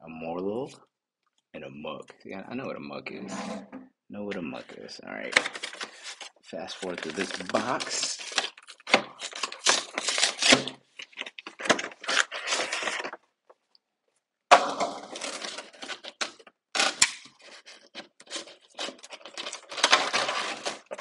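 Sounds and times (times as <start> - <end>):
packaging rustling and crinkling: 5.2 - 13.3, 14.9 - 21.0.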